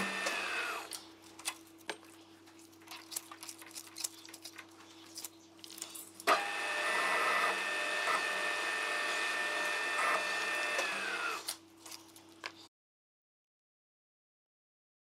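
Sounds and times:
milling machine motor whining: 0.0 - 0.9, 6.2 - 11.5.

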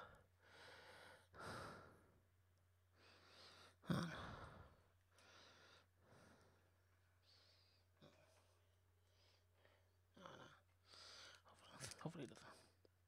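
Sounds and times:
soft breathing close to microphone: 2.9 - 8.3.

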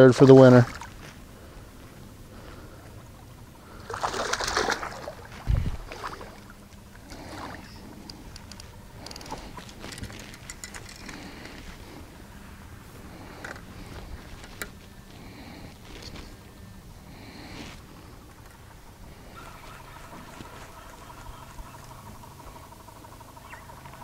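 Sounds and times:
fish splashing in water: 3.7 - 7.8
light clicks and rustles: 6.7 - 12.1, 13.0 - 16.5.

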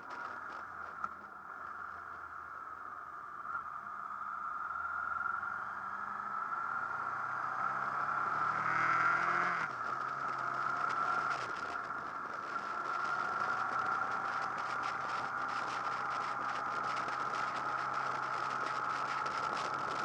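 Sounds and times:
wind and road noise: 0.0 - 20.0
motorcycle engine accelerating: 5.8 - 20.0.

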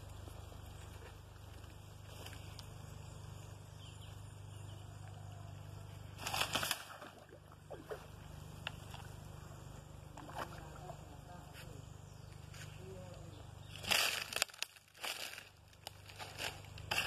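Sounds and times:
rustling of palm fronds: 6.1 - 7.3, 12.3 - 17.0
splash into pond water: 6.2 - 8.2, 10.1 - 11.0.

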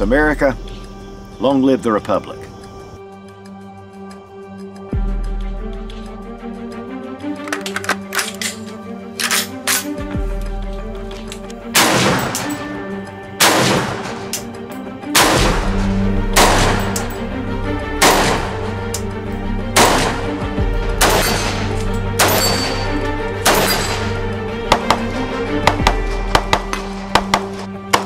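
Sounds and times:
background music: 0.0 - 28.0
rifle single shots: 11.8 - 12.8, 13.4 - 17.1, 18.0 - 18.7, 19.8 - 20.4, 21.0 - 25.0.

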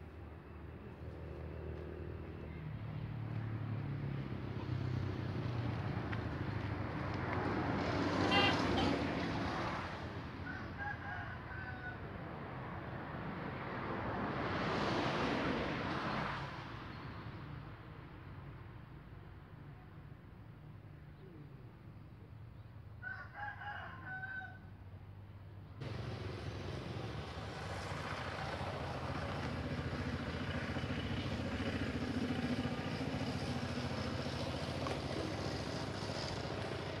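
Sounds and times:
rooster crowing: 10.4 - 12.3, 23.0 - 24.7.

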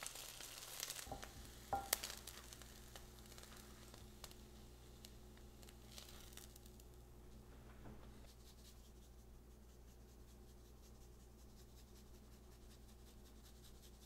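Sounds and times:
seasoning shaker rattling: 0.0 - 6.9
steady low hum: 1.0 - 14.0.

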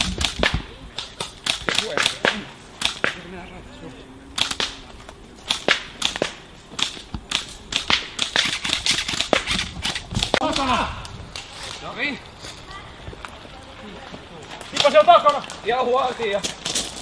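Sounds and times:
airsoft guns firing: 0.0 - 3.4, 4.4 - 10.8
faint voices: 0.5 - 5.4.

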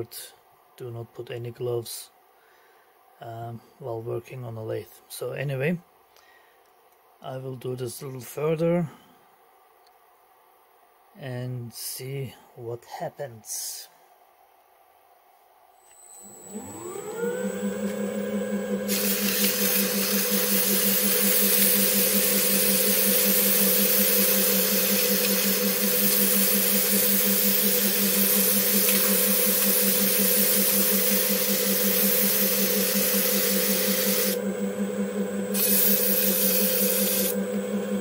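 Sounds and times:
lathe humming: 16.2 - 38.0
sandpaper hissing on metal: 18.9 - 34.4, 35.6 - 37.4.

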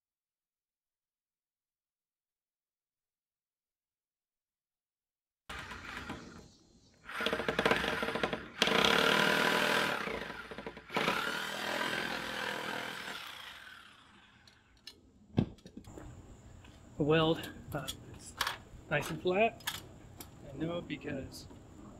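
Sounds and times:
power saw cutting wood: 7.0 - 14.6
saw blade winding down whine: 7.0 - 14.7.

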